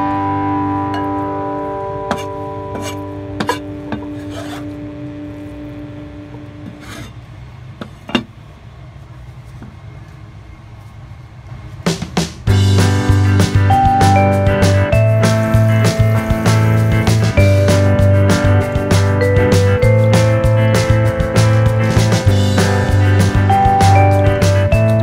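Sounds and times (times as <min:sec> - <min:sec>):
background music: 0:00.0 - 0:05.1, 0:12.5 - 0:25.0
cleaver scraping cutting board: 0:02.1 - 0:04.7, 0:06.7 - 0:07.2.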